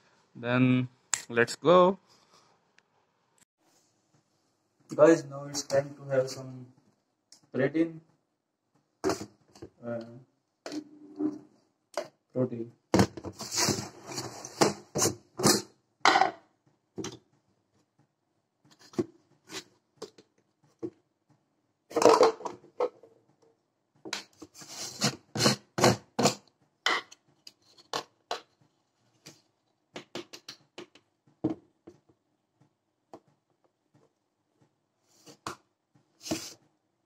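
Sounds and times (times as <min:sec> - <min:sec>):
plastic tubs being handled: 0:09.0 - 0:12.2, 0:18.6 - 0:21.1, 0:33.1 - 0:36.7.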